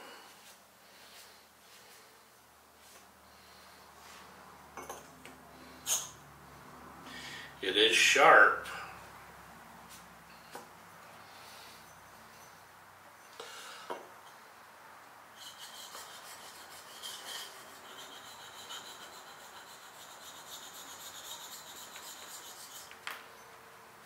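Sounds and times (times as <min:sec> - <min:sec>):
blade scraping on sharpening stone: 0:15.4 - 0:23.0.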